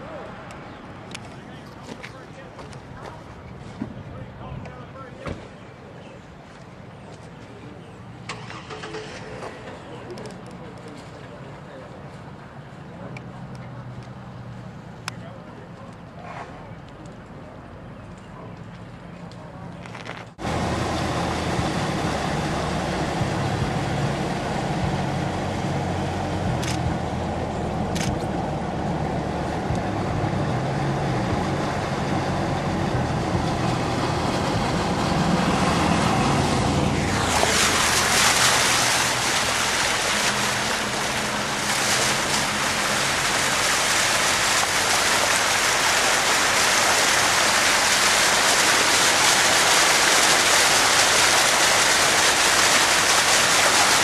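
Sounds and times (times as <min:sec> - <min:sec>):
vehicle engine running: 0:20.4 - 0:54.0
water rushing and splashing: 0:20.4 - 0:54.0.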